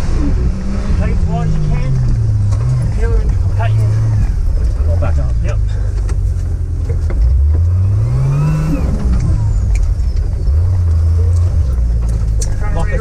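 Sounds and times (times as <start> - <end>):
turbocharged engine revving: 0.0 - 13.0.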